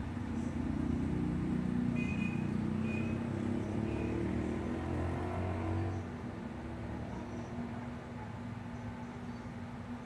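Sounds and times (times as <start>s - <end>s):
vehicle engine running: 0.0s - 7.5s.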